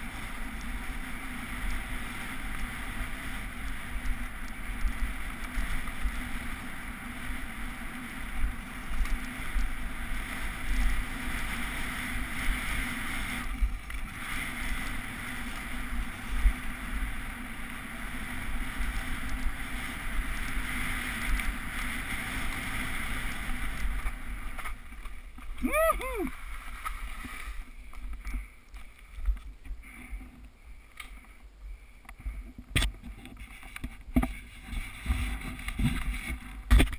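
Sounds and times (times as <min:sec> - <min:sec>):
mountain bike rumbling downhill: 0:00.0 - 0:36.9
wind rushing over camera: 0:00.0 - 0:36.9.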